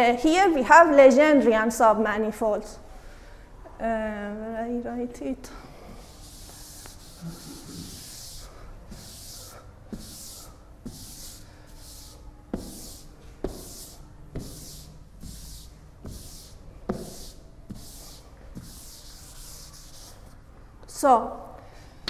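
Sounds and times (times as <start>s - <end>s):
chalk scratching on blackboard: 5.9s - 20.4s
chalk tapping on board: 6.0s - 20.2s.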